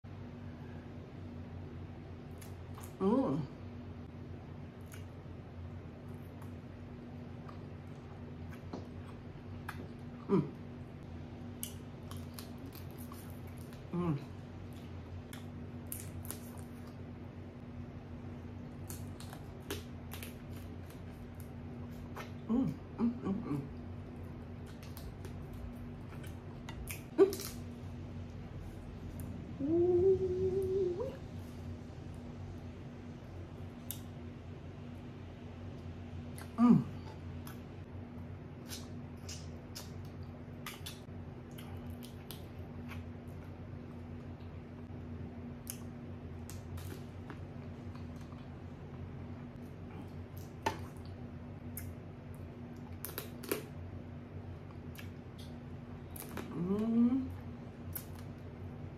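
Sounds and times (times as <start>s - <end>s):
faint steady hum: 0.0s - 58.9s
lip smacks and mouth clicks: 4.8s - 5.2s, 11.6s - 13.9s, 24.6s - 27.6s, 33.8s - 34.1s, 38.6s - 43.6s, 45.6s - 48.6s, 50.1s - 53.7s, 54.6s - 56.5s, 57.8s - 58.5s
person humming mm: 10.2s - 10.6s, 22.4s - 23.8s, 29.5s - 31.2s, 36.4s - 37.2s, 56.4s - 57.4s
wet lip smacks: 38.6s - 43.0s.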